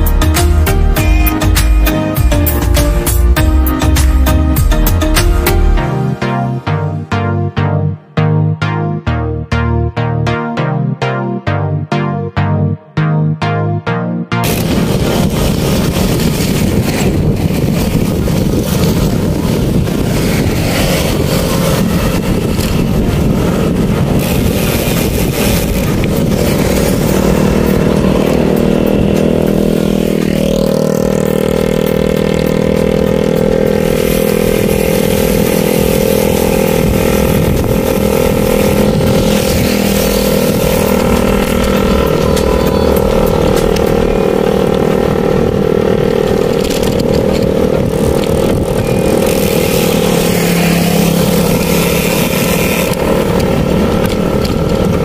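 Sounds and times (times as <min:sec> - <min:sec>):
motorcycle engine running: 0:14.3 - 0:55.0
rushing noise: 0:14.4 - 0:55.0.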